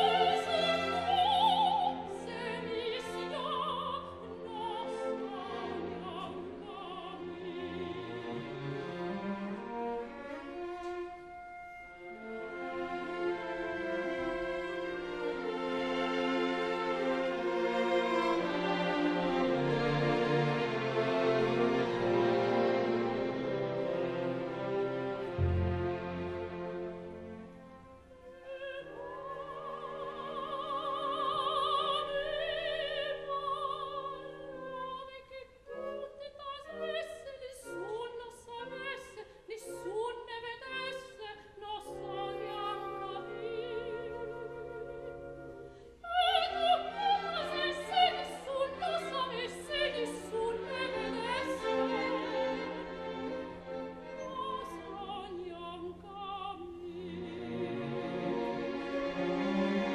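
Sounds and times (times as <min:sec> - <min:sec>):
opera singer with vibrato: 0:00.0 - 0:08.2, 0:28.1 - 0:58.2
orchestral strings: 0:00.0 - 0:59.9.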